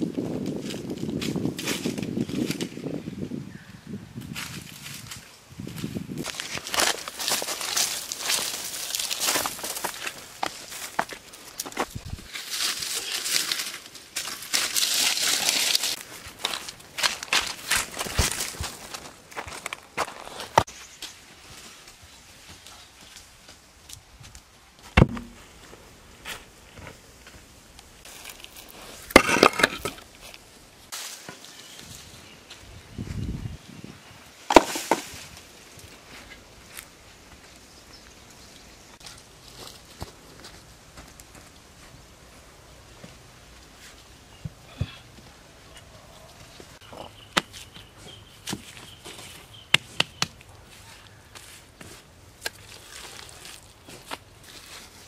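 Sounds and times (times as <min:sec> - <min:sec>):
stone slab thudding onto earth: 0:24.9 - 0:25.4, 0:29.1 - 0:30.0, 0:34.5 - 0:35.2
stone slabs clacking and scraping: 0:29.0 - 0:30.1, 0:34.5 - 0:35.1.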